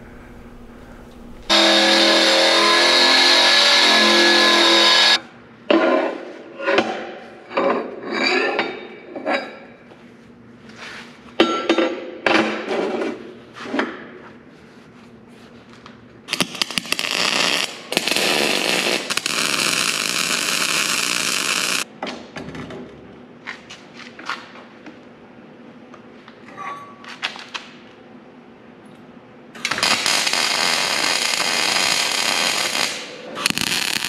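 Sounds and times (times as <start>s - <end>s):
welding arc crackling: 1.1s - 5.2s, 16.3s - 21.9s, 29.6s - 34.0s.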